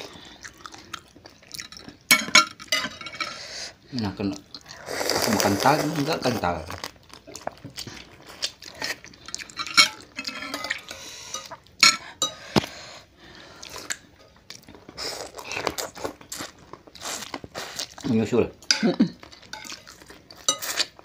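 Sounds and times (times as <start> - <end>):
spoons clinking on ceramic bowls: 2.1 - 3.3, 9.3 - 12.4, 18.7 - 19.8
noodles slurped: 4.6 - 6.4.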